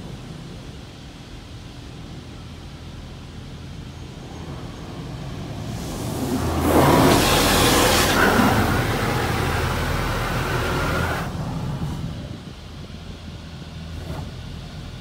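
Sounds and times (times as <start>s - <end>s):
faint steady whine: 0.0s - 15.0s
water jets spraying on car: 5.4s - 12.3s.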